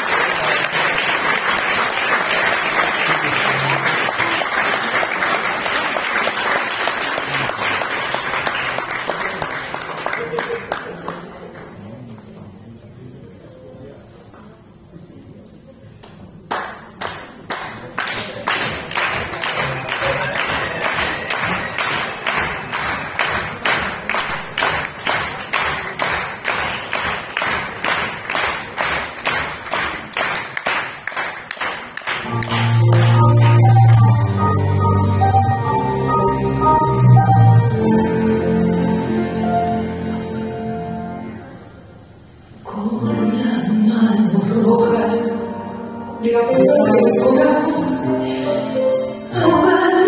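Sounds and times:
audience applauding: 0.0s - 12.3s, 16.0s - 34.8s.

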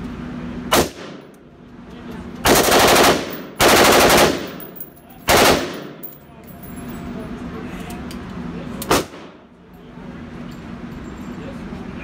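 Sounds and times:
rifle firing with echo: 2.5s - 6.0s.

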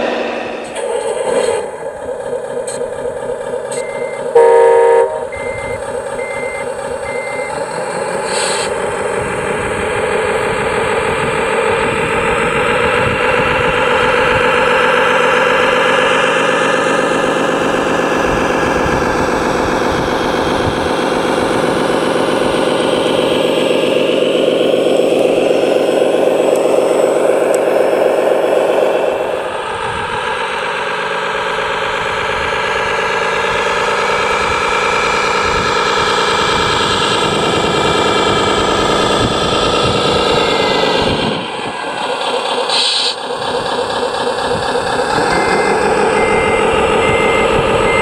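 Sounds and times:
model truck engine sound revving: 0.0s - 48.0s
reversing beeps: 3.7s - 7.7s, 40.2s - 41.2s, 45.2s - 48.0s
loud horn blast: 4.3s - 5.6s.

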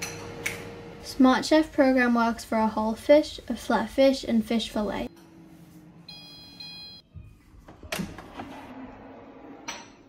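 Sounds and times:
electronic beeping tone: 6.1s - 7.0s
drawer sliding open: 7.7s - 9.6s.

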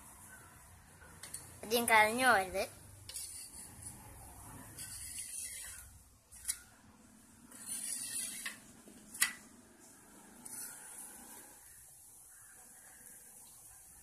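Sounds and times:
metal spatula scraping pan: 3.1s - 6.6s, 7.4s - 8.8s, 10.2s - 11.7s.

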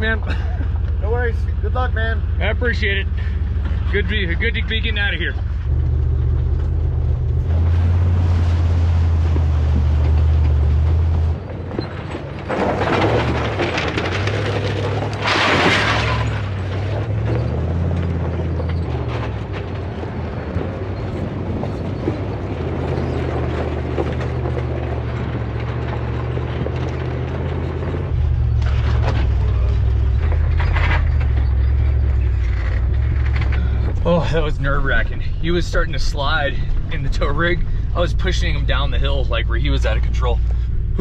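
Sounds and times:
engine and tyres on gravel: 0.0s - 41.0s.

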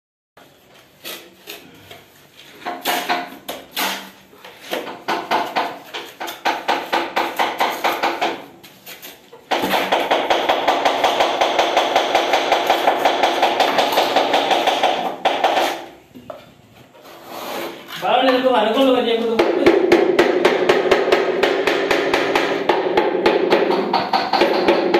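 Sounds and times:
trowel scraping cement mortar: 0.7s - 4.9s, 8.6s - 9.4s, 16.9s - 18.3s.

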